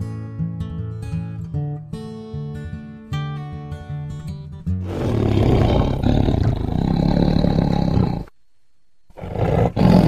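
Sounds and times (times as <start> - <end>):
tiger growling: 4.8 - 8.3, 9.1 - 10.0.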